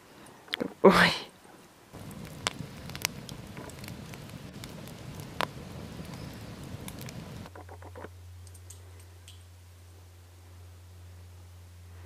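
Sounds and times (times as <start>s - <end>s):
faint steady low hum: 0.0s - 12.0s
campfire crackling and popping: 1.9s - 9.6s.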